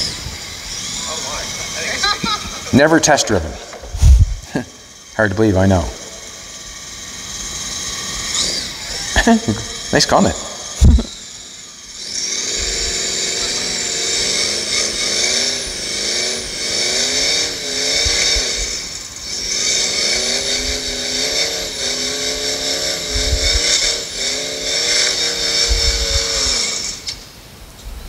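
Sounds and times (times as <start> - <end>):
car engine revving: 12.0 - 26.9.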